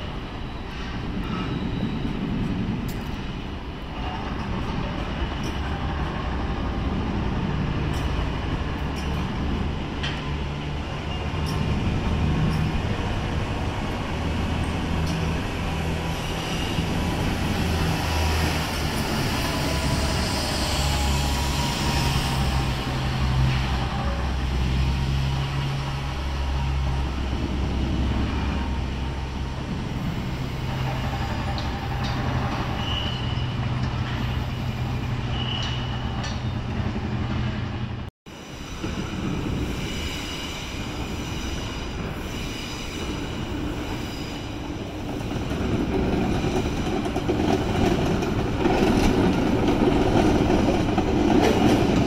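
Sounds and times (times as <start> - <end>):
high-pitched train squeals: 0.0 - 2.4, 16.0 - 27.3, 28.2 - 36.8, 38.4 - 45.0
train low hum: 0.0 - 52.0.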